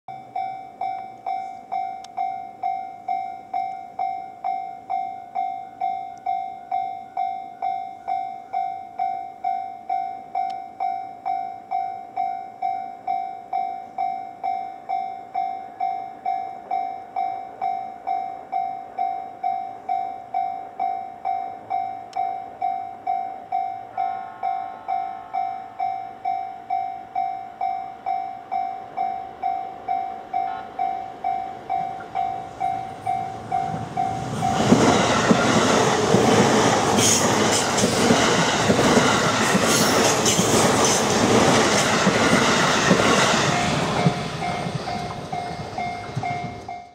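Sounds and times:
level-crossing bell ringing: 0:00.1 - 0:34.8, 0:43.3 - 0:46.9
electric train passing: 0:00.1 - 0:46.9
distant train horn: 0:05.5 - 0:08.9, 0:23.4 - 0:35.4.

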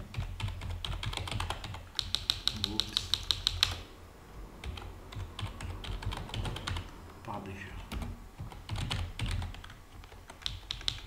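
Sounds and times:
typing on computer keyboard: 0:00.0 - 0:03.8, 0:04.6 - 0:06.8, 0:07.8 - 0:11.0.

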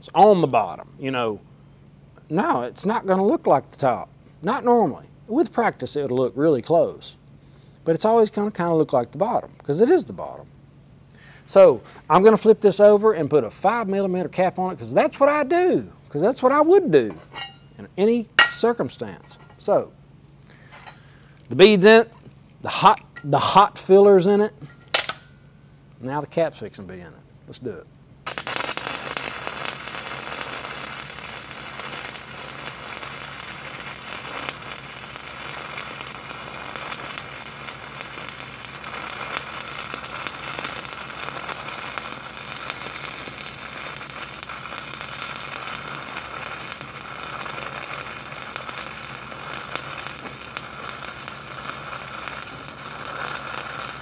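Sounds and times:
welding arc crackling: 0:28.2 - 0:54.0.

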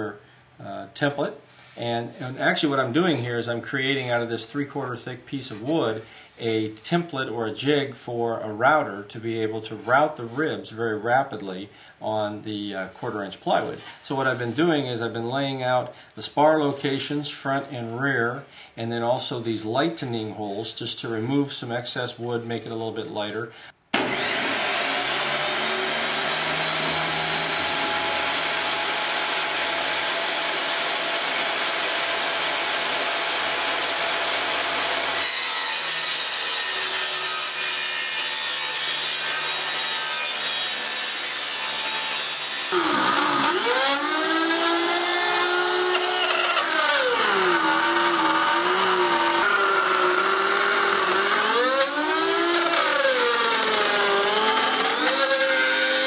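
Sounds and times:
hand router whining: 0:24.0 - 0:35.3, 0:42.7 - 0:56.0
table saw cutting plywood: 0:24.0 - 0:56.0.

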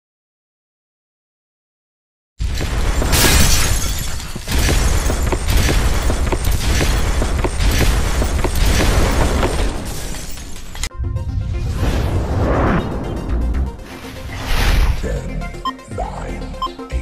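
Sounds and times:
glass shattering: 0:02.4 - 0:10.9.

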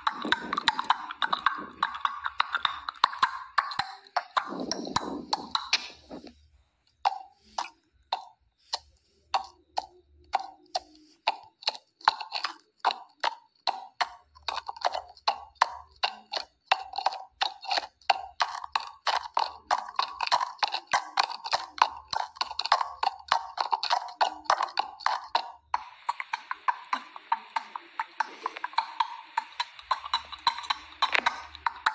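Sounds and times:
horse hooves clip-clopping: 0:00.0 - 0:06.4, 0:15.6 - 0:31.9.

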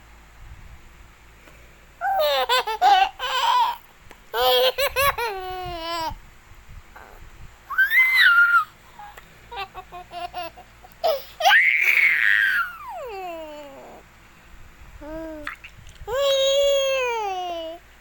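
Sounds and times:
toddler laughing: 0:02.0 - 0:06.2, 0:07.0 - 0:14.0, 0:15.0 - 0:17.8
toddler squealing: 0:07.0 - 0:09.2, 0:11.1 - 0:14.0.

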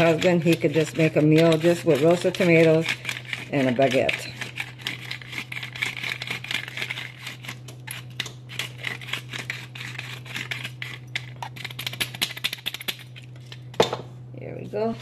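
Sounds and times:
pepper mill grinding: 0:00.0 - 0:13.6.

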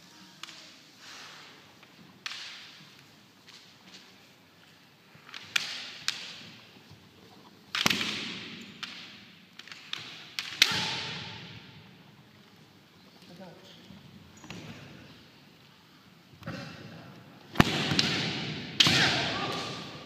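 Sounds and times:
bamboo swords clacking: 0:02.2 - 0:04.1, 0:05.2 - 0:06.7, 0:07.7 - 0:11.9, 0:17.5 - 0:20.0.

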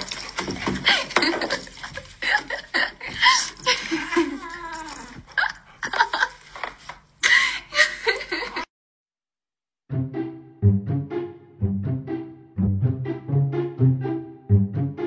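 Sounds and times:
person laughing breathily: 0:00.8 - 0:04.6, 0:07.2 - 0:08.7.

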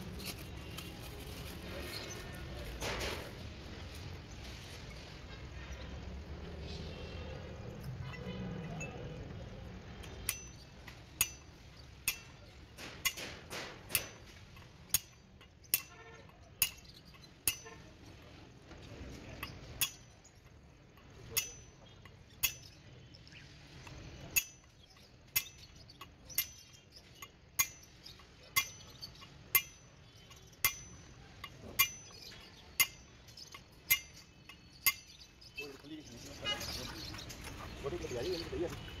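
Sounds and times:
steel bar clinking on bearing: 0:09.9 - 0:23.0, 0:23.8 - 0:35.4.

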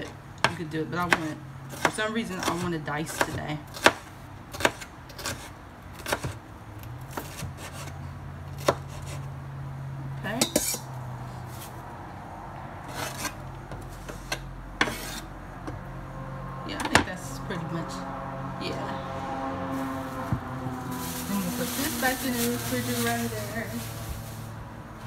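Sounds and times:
knife scraping across board: 0:12.8 - 0:15.3.

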